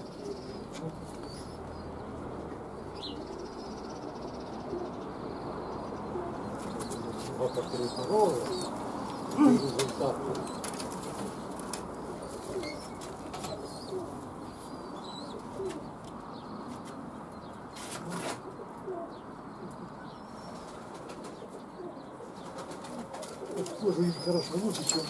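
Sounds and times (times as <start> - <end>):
pigeons cooing: 0.0 - 25.0
wings flapping: 22.4 - 23.8.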